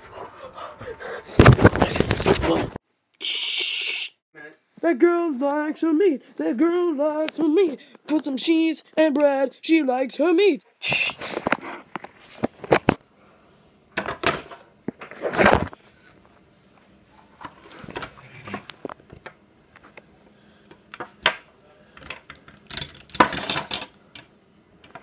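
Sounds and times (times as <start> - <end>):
plastic toys clattering: 22.0 - 24.3.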